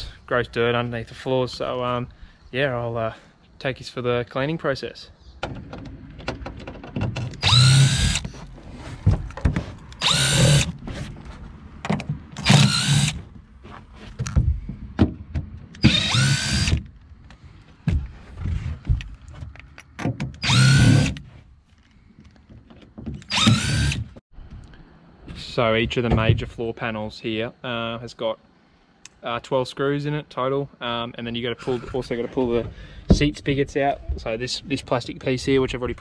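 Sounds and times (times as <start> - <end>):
cordless screwdriver motor whine: 7.4 - 8.3, 10.0 - 10.7, 20.4 - 21.2, 23.3 - 24.0.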